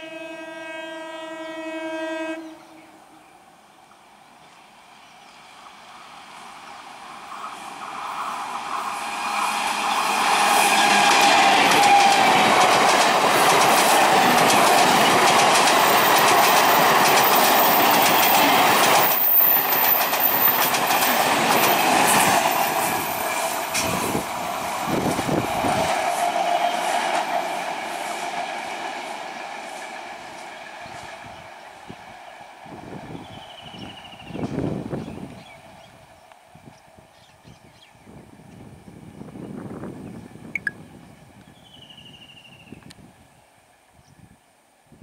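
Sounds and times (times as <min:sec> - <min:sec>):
train wheels clattering: 0:09.6 - 0:24.2.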